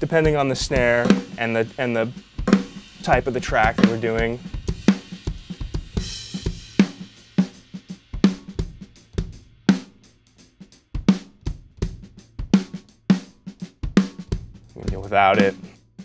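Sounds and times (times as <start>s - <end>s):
drum kit groove: 0.0s - 16.0s
snare drum hits: 0.8s - 4.5s.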